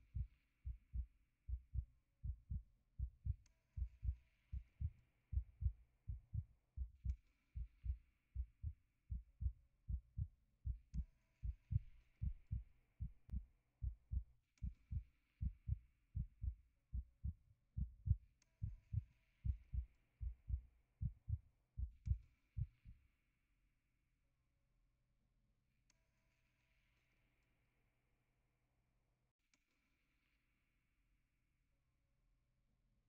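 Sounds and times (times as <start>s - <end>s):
heartbeat thumps: 0.1s - 22.8s.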